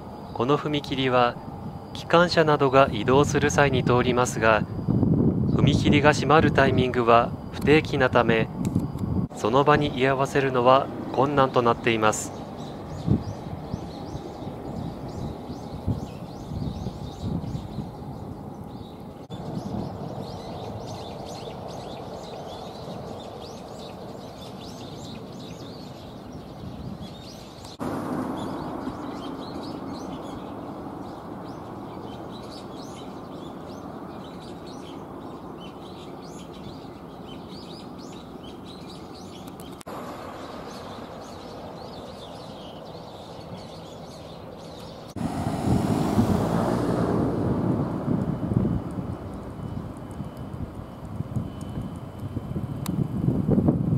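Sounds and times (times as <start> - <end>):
street traffic hum: 0.0 - 53.9
small birds chirping: 9.5 - 45.2, 48.6 - 52.4
loud rushing noise: 45.1 - 49.1.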